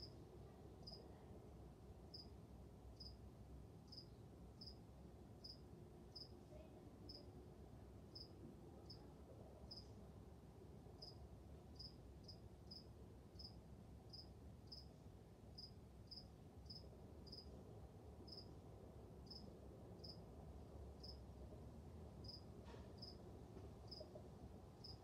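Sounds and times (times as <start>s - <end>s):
quiet room hum: 0.0s - 25.0s
cricket chirping: 2.1s - 2.3s, 3.0s - 3.2s, 3.9s - 4.8s, 5.4s - 6.3s, 8.1s - 8.3s, 9.7s - 9.9s, 11.0s - 11.2s, 11.8s - 14.9s, 15.5s - 17.5s, 18.2s - 18.5s, 19.2s - 20.2s, 21.0s - 21.2s, 22.2s - 22.4s, 23.0s - 23.2s, 23.9s - 24.1s, 24.8s - 25.0s.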